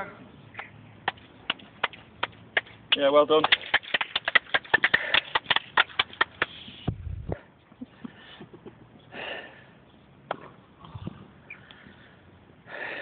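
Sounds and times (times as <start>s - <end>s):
hand clapping: 0.6s - 6.6s.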